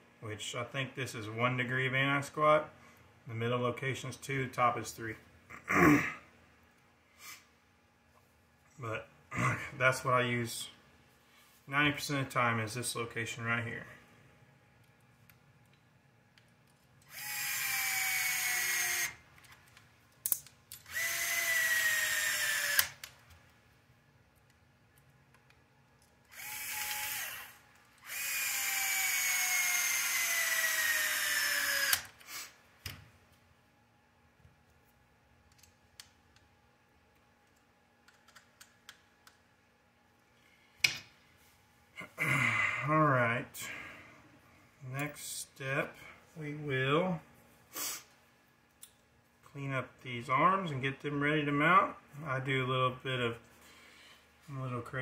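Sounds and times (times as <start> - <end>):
power screwdriver whining: 17.0 - 19.2, 20.8 - 23.0, 26.3 - 32.2
clicks of parts handled: 19.4 - 20.9.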